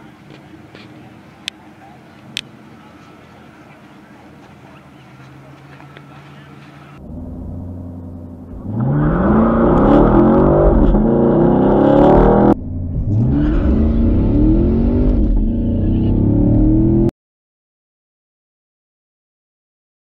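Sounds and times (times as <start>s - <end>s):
car engine revving through gears: 7.0s - 17.1s.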